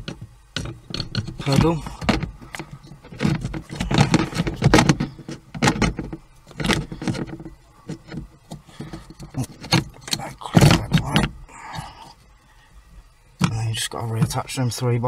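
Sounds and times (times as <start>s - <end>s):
plastic pedal knocking and scraping: 0.0s - 11.9s.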